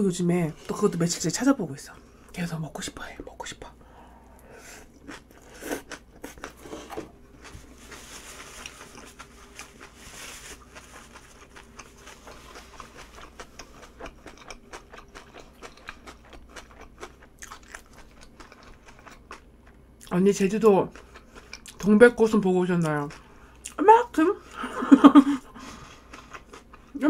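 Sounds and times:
paper tissue rustle: 7.6 - 11.4
close-miked chewing with mouth clicks: 10.6 - 20.1, 20.9 - 21.9.

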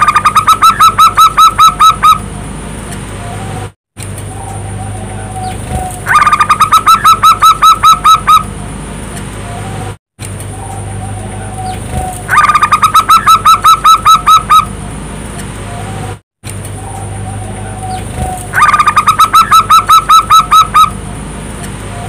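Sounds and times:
steady low hum: 1.7 - 22.0
dove cooing: 16.8 - 20.9.

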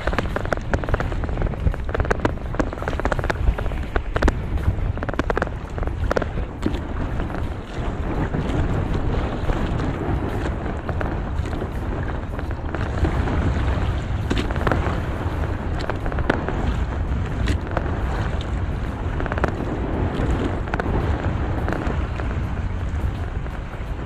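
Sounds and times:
sharp crackles and snaps: 0.0 - 7.5, 14.2 - 15.0, 19.2 - 22.4
low rumble: 0.0 - 24.0.

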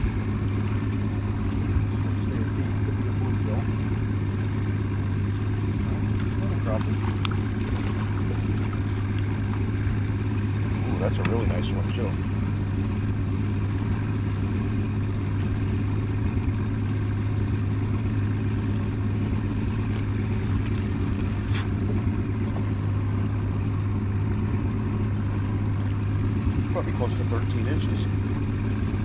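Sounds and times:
boat motor droning: 0.0 - 29.0.

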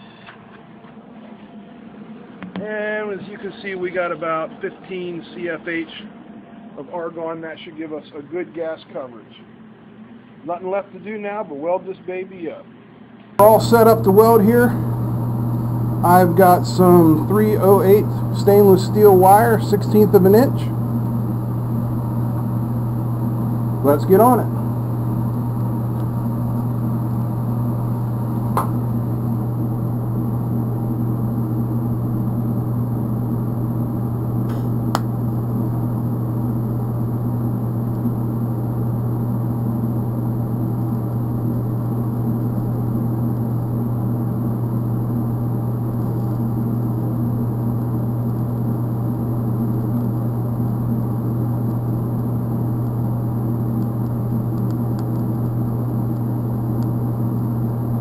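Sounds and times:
welding arc hum: 13.4 - 58.0.

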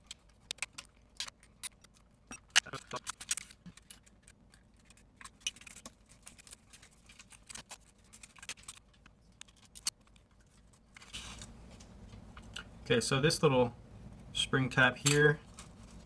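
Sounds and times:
plastic parts clicking: 0.0 - 11.4.

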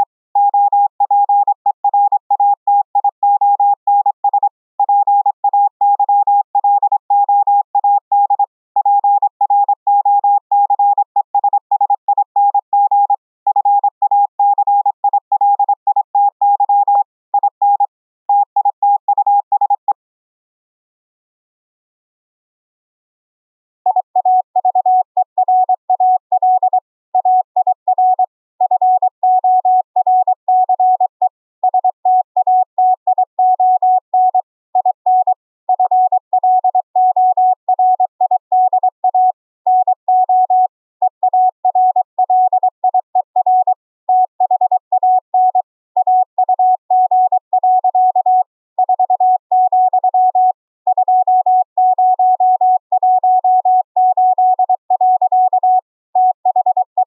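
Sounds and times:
morse code beeps: 0.0 - 20.0, 23.9 - 57.0.

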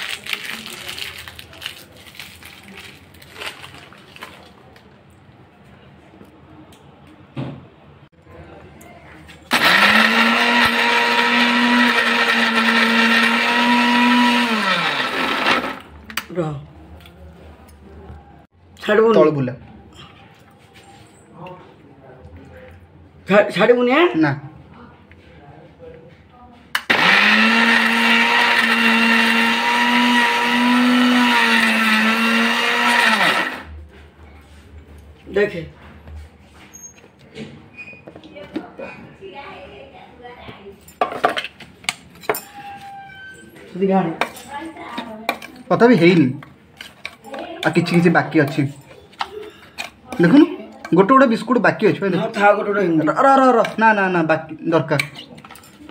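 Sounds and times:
mixer grinder motor whirring: 9.5 - 15.9, 26.8 - 33.7.

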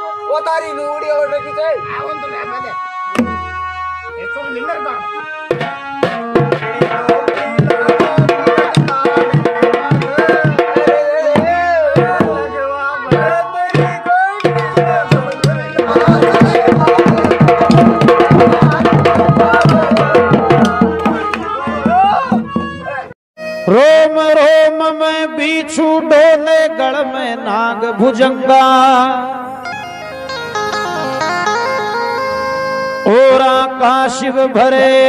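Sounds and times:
pitched melody: 0.0 - 25.8, 26.7 - 34.1
rapid tabla drumming: 3.1 - 4.1, 5.5 - 22.8.

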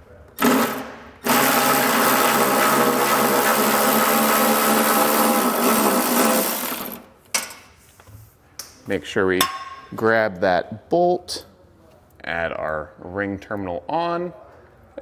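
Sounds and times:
power ratchet motor whine: 0.4 - 7.0.

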